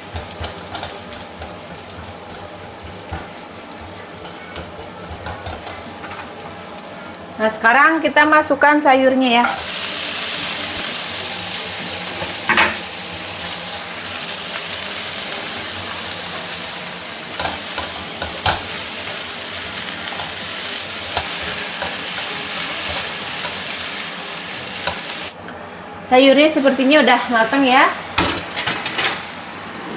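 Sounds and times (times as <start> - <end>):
vegetables sizzling in oil: 0.0 - 25.4, 26.4 - 29.6.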